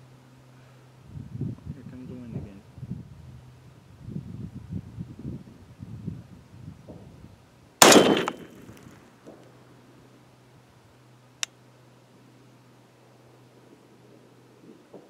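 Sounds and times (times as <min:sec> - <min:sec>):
rifle shot: 0:07.8 - 0:08.7.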